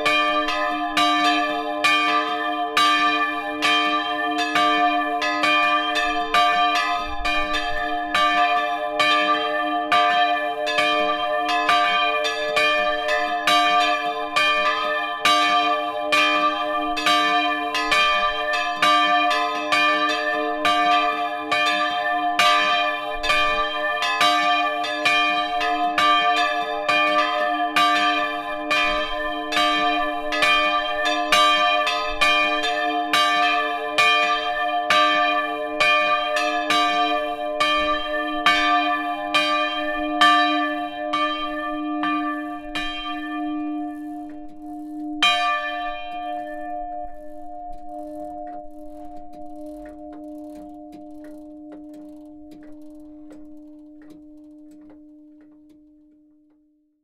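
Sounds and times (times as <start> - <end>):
church bells ringing: 0.0 - 56.0.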